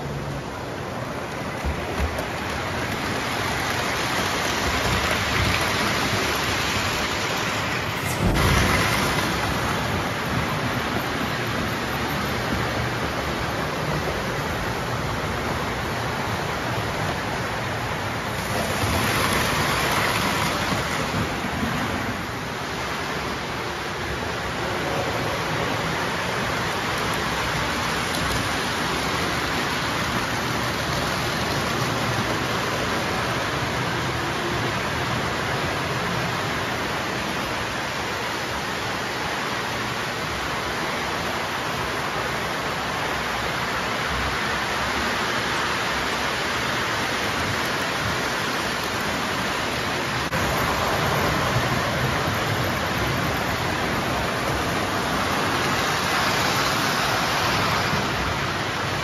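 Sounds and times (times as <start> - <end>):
model trains rumbling on metal track: 0.0 - 39.2, 39.8 - 59.0.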